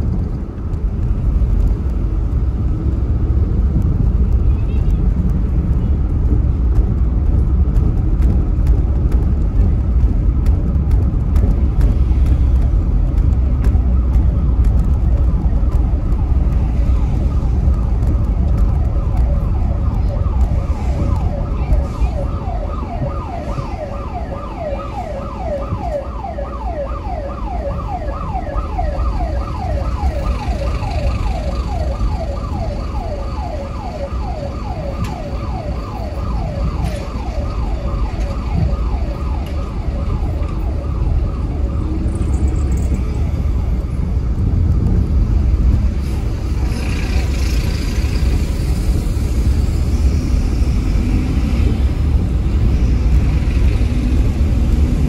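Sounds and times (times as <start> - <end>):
low rumble of car driving: 0.0 - 55.0
siren in rapid yelp mode: 14.0 - 43.2.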